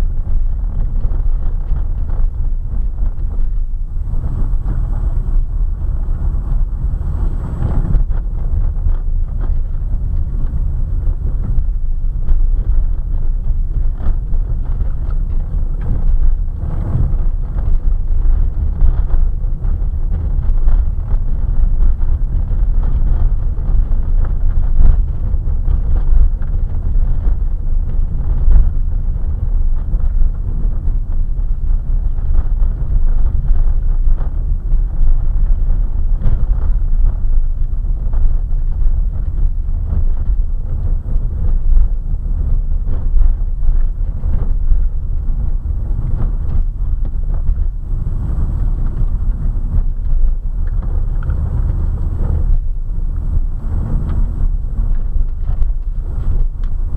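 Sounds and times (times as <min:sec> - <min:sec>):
tyres and engine rumble: 0:00.7 - 0:25.3, 0:39.2 - 0:56.9.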